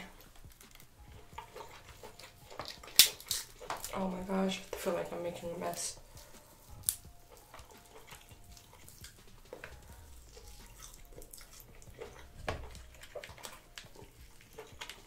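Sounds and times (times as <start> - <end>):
shell cracking and clicking: 0.2 - 4.0, 6.8 - 15.0.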